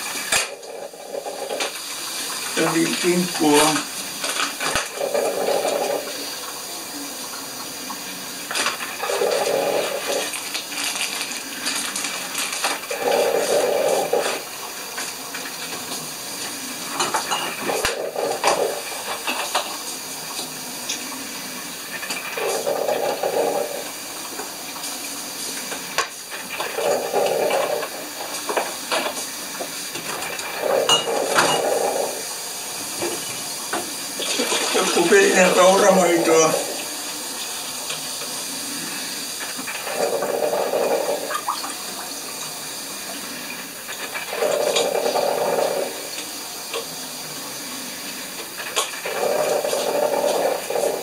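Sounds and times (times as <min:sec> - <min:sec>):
coffee maker gurgling and hissing: 0:00.0 - 0:51.0
dishes clinking and knocking: 0:16.9 - 0:19.7, 0:30.0 - 0:32.0.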